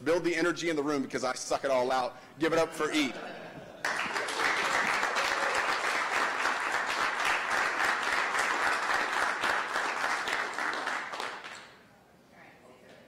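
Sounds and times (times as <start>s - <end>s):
audience applauding: 3.8s - 11.8s.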